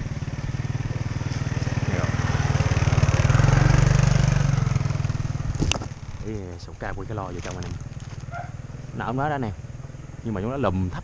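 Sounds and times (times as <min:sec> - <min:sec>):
motorbike engine passing by: 0:00.0 - 0:11.0.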